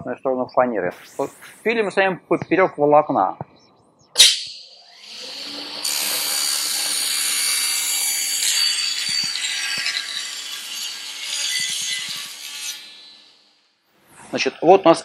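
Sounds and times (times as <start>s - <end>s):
table saw blade humming: 4.2s - 13.4s.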